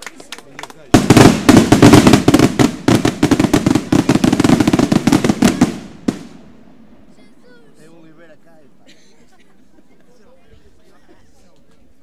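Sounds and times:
firecrackers banging: 0:00.0 - 0:06.7.

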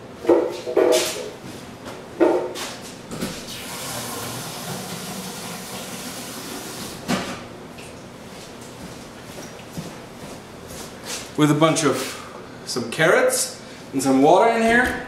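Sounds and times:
water running from a tap: 0:03.6 - 0:06.9.

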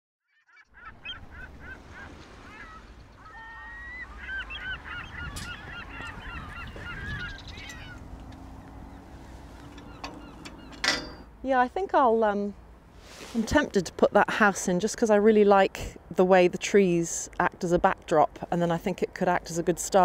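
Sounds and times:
geese honking: 0:00.6 - 0:10.8.

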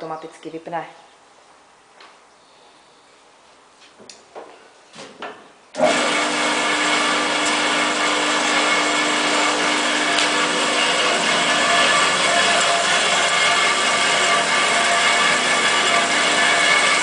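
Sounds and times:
bandsaw humming and whining: 0:05.8 - 0:17.0.

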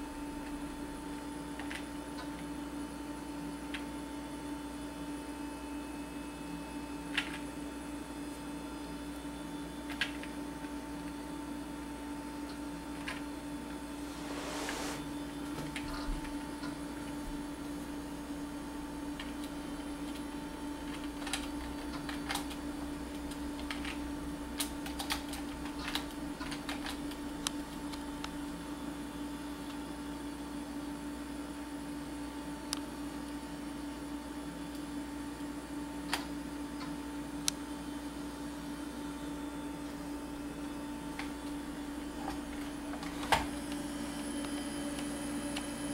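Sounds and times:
computer hum: 0:16.6 - 0:28.0.

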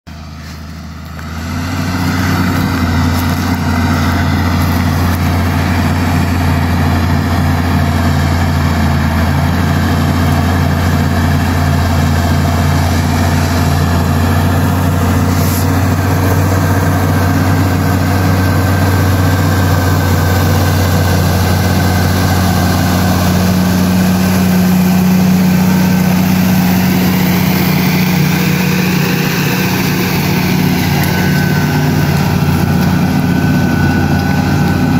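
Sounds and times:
tractor diesel engine running: 0:00.1 - 0:34.9.

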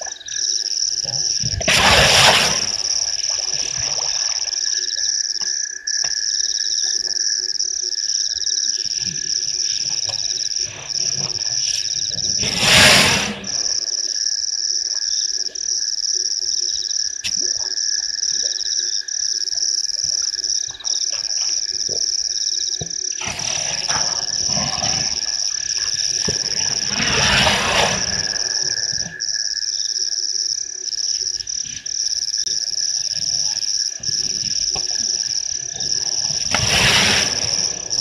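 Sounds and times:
frogs and insects chorus: 0:00.0 - 0:38.0
loud rustling: 0:12.4 - 0:13.7, 0:36.2 - 0:38.0.

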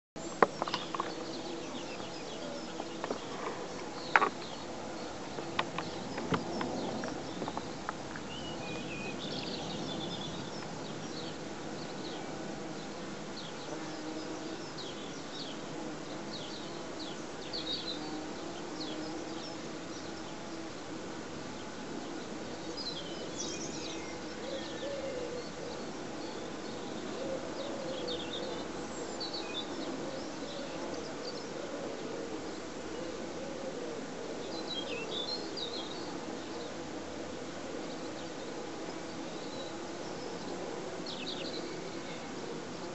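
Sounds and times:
birds chirping: 0:00.2 - 0:20.8, 0:21.6 - 0:31.6
bumblebees buzzing: 0:00.2 - 0:24.4.

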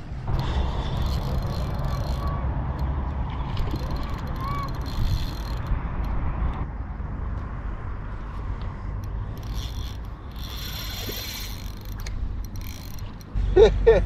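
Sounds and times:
steady low rumble: 0:00.0 - 0:14.0
fishing reel whirring: 0:00.4 - 0:06.2, 0:09.0 - 0:13.4.

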